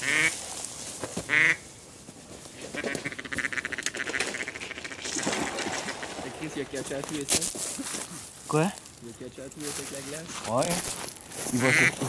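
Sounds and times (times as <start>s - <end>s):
duck quacking: 0.0s - 0.4s, 1.3s - 1.6s, 2.7s - 5.0s, 11.6s - 12.0s.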